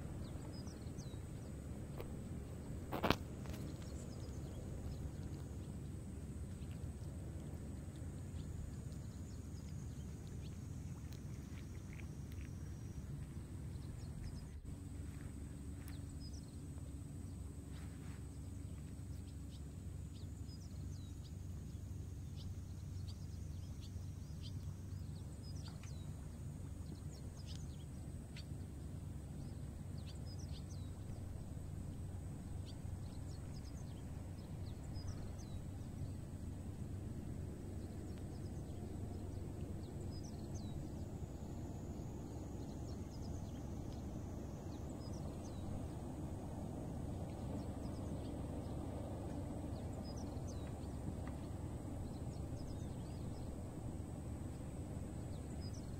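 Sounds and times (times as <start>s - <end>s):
steady low hum: 0.0s - 55.9s
cats chewing and licking: 1.9s - 16.1s.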